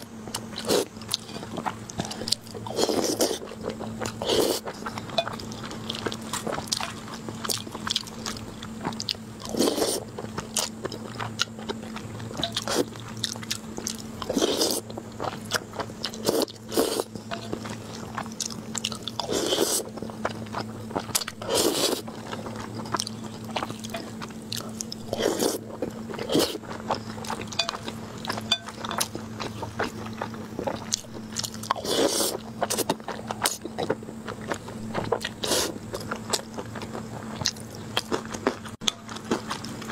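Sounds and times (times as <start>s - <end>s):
slurping noodles: 2.1s - 3.5s, 4.2s - 4.8s, 9.5s - 10.1s, 14.3s - 14.8s, 16.2s - 17.1s, 19.2s - 19.9s, 21.4s - 22.0s, 25.1s - 26.6s, 31.7s - 32.8s, 35.4s - 35.8s.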